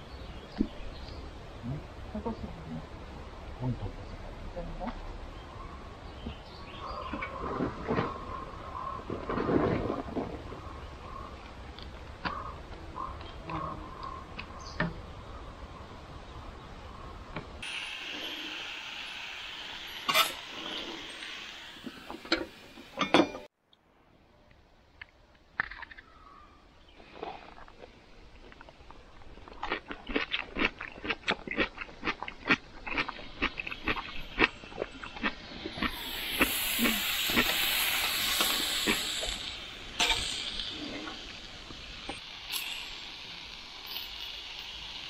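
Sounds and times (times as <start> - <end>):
grill sizzling: 17.6 - 23.1, 34.1 - 45.0.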